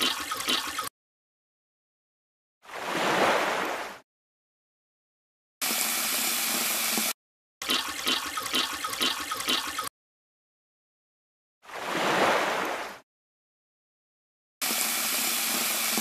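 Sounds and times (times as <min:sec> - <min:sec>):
tap water running: 0:00.0 - 0:00.9, 0:05.6 - 0:09.9, 0:14.6 - 0:16.0
water filling and gurgling: 0:00.0 - 0:00.9, 0:07.6 - 0:09.9
water pouring into a bucket: 0:00.0 - 0:00.9, 0:07.6 - 0:09.9.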